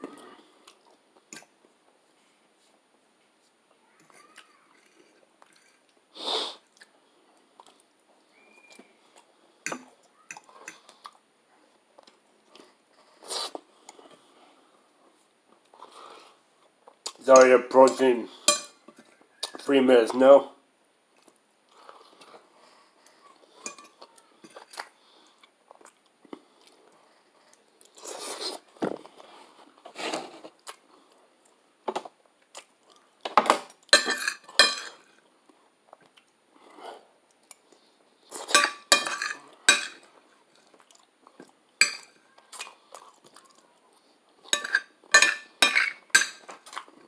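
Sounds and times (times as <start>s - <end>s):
person chewing: 4.2s - 11.3s, 21.1s - 29.8s, 30.4s - 31.6s, 32.4s - 33.2s, 35.4s - 44.6s, 46.4s - 47.0s
cutlery clinking on a plate: 17.4s - 19.6s, 23.6s - 24.8s, 33.4s - 35.0s, 38.4s - 40.1s, 41.8s - 42.2s, 44.5s - 46.6s.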